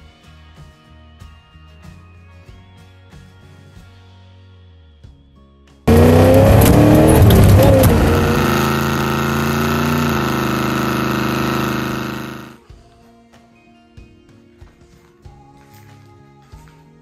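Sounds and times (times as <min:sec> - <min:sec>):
car engine revving hard: 0:05.9 - 0:12.6
tyres spinning on pavement: 0:05.9 - 0:12.6.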